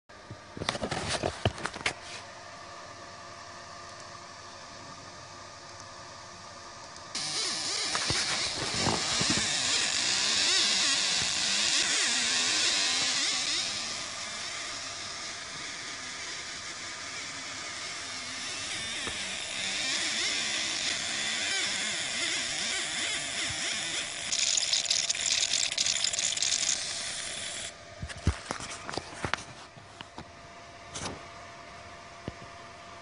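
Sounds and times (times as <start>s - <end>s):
laser engraving hiss and buzz: 7.2s - 27.8s.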